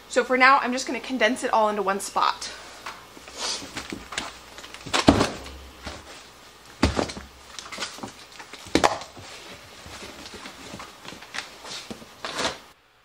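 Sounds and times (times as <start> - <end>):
plastic wrapping rustling: 3.2 - 12.7
frozen packages thudding into tote: 3.7 - 6.1, 6.7 - 9.3.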